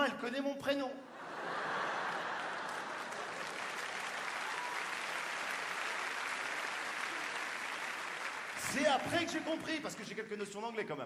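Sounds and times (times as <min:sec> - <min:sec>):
audience applauding: 0:01.4 - 0:10.1.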